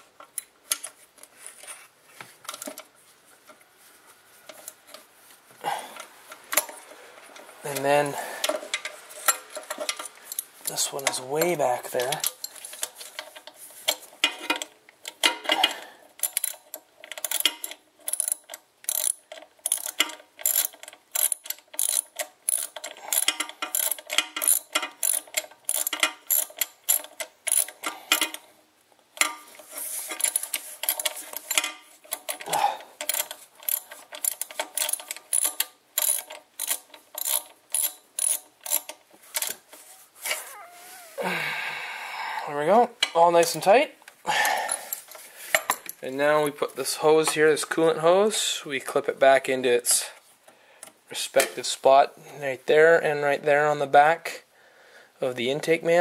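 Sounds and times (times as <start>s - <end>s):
socket ratchet clicking: 16.2s - 28.4s, 33.0s - 39.5s.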